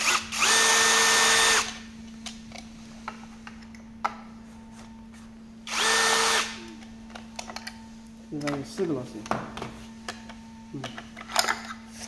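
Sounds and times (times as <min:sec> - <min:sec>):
cordless drill spinning: 0:00.0 - 0:01.8, 0:05.7 - 0:06.6.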